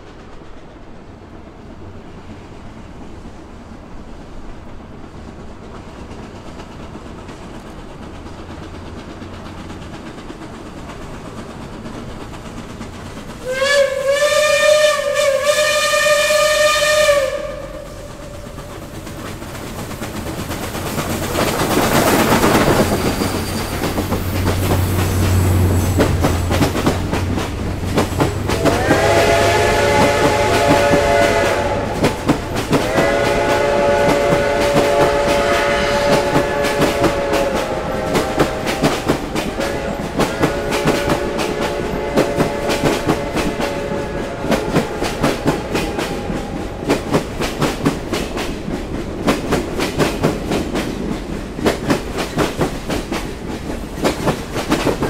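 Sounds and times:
steam locomotive passing: 0.0 - 55.0
steam locomotive whistle blast: 13.4 - 18.6, 28.5 - 46.8.

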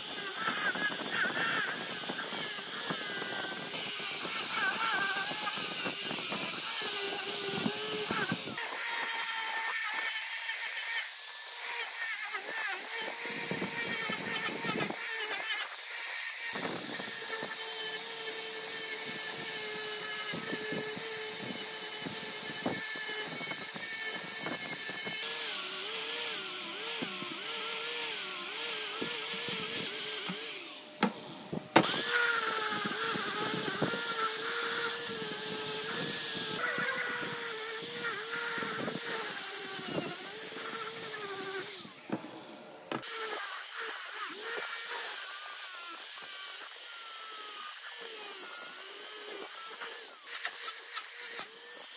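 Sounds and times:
wire wheel grinder brushing metal: 31.8 - 42.0.

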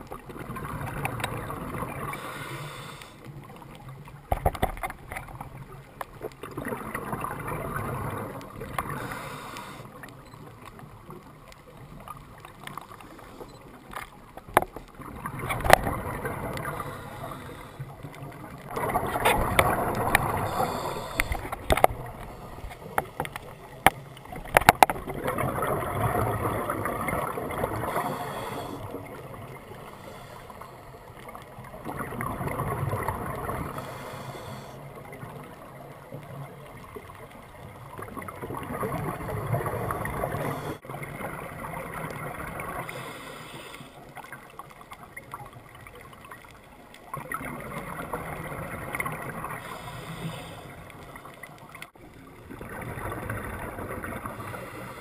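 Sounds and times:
exhaled bubbles gushing underwater: 0.0 - 2.4, 3.3 - 13.6, 14.2 - 43.1, 44.0 - 55.0
diver breathing through regulator: 1.9 - 3.3, 8.8 - 10.0, 16.4 - 18.1, 19.3 - 24.2, 27.6 - 29.1, 29.7 - 31.2, 33.5 - 34.9, 40.2 - 40.8, 42.7 - 44.1, 49.4 - 51.2, 54.2 - 55.0.

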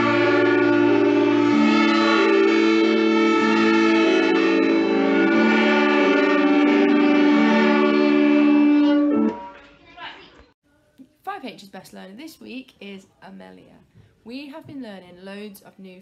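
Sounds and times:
children playing violins: 0.0 - 9.4.

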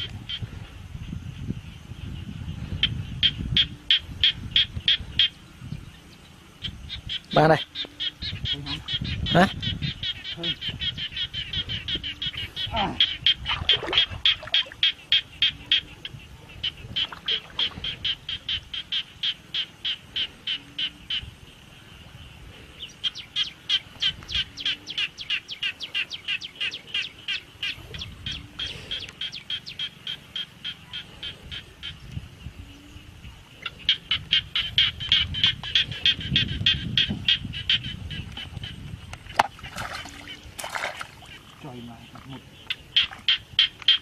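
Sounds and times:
high clicking animal calls: 7.1 - 16.0, 28.6 - 32.2, 33.7 - 44.0.

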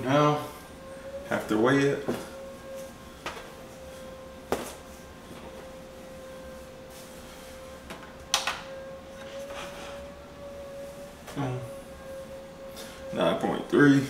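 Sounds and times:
electrical hum: 0.0 - 14.0
knocks of things handled: 4.5 - 4.8.

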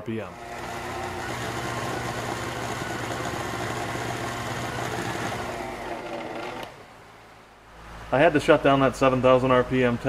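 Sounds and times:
electric router whirring: 0.3 - 7.0.

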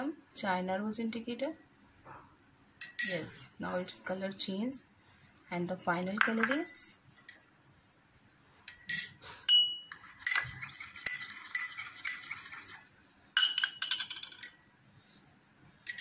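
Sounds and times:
small glass clinking: 2.8 - 3.3, 8.7 - 12.6, 13.4 - 14.6.

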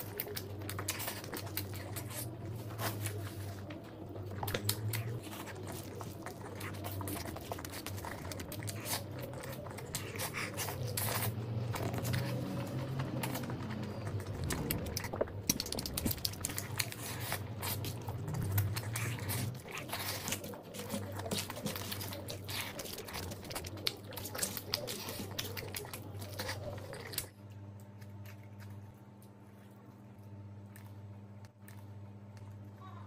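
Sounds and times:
food squished between fingers: 0.0 - 29.4
wet chewing and smacking: 0.0 - 32.6
low steady hum: 0.0 - 33.0.

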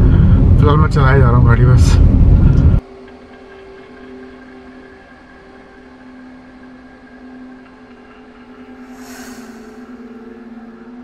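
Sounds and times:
low ambient drone: 0.0 - 11.0
faint hiss: 8.8 - 10.7.

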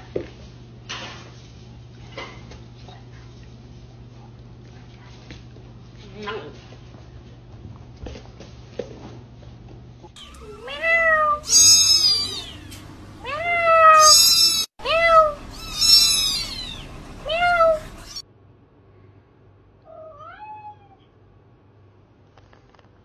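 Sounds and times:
kittens mewing: 10.2 - 18.2.

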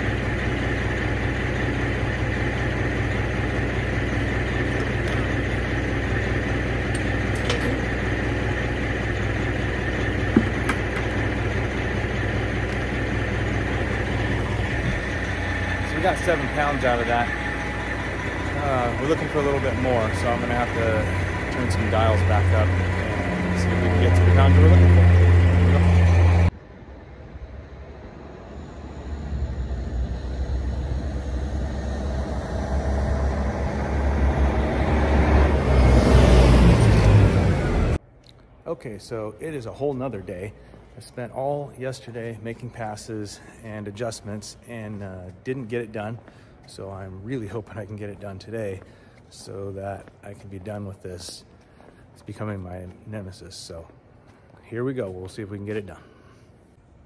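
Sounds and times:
truck engine idling: 0.0 - 38.0.

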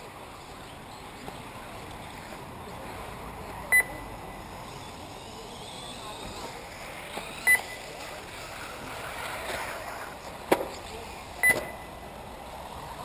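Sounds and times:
short electronic beep: 3.7 - 4.1, 7.4 - 7.9, 11.4 - 11.9.

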